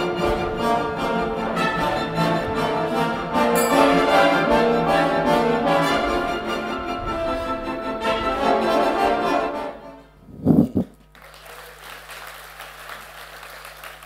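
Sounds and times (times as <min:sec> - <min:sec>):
orchestral music with brass: 0:00.0 - 0:10.1
audience applause: 0:11.1 - 0:14.0.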